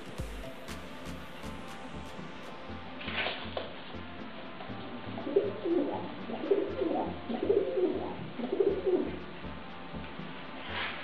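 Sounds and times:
bird cooing: 5.2s - 9.2s.

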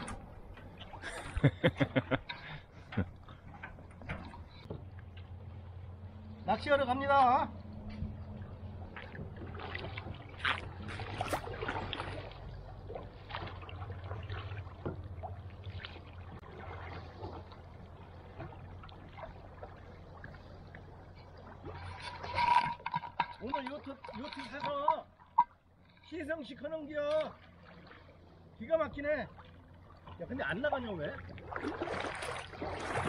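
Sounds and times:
kayak paddle splashing in water: 8.9s - 25.6s, 31.1s - 33.0s.

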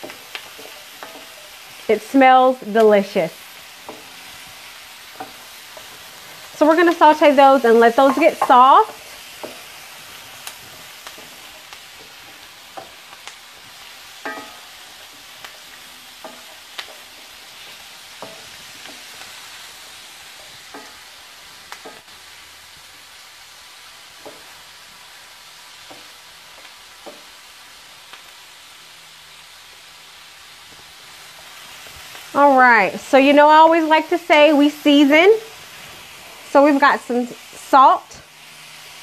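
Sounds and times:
apples and onions sizzling in fat: 0.0s - 39.0s
pan ringing: 8.0s - 9.0s
wooden spatula knocking on pan: 8.0s - 9.7s, 14.2s - 14.6s, 27.0s - 27.3s.

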